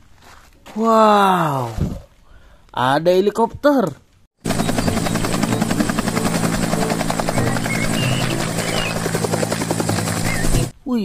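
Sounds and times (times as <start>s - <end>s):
helicopter rotor and turbine: 4.4s - 10.8s.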